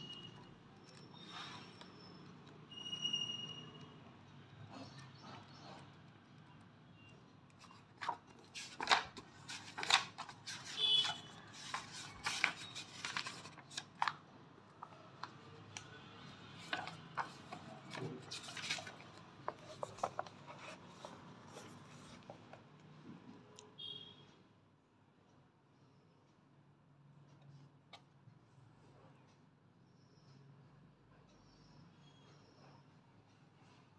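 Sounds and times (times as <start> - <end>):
book pages flipping: 7.5 - 22.8.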